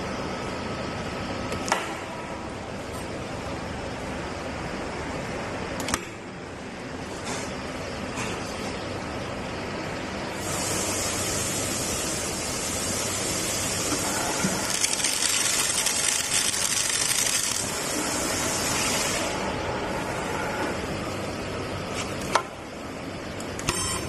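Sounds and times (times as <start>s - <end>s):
welding machine hissing and crackling: 10.3s - 19.6s.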